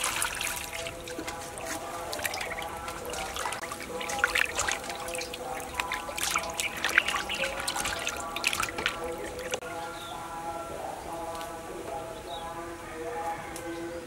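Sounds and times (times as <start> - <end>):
water dripping: 0.0 - 9.6
water splashing in metal bowl: 0.0 - 9.6
wet slaps: 2.1 - 9.6.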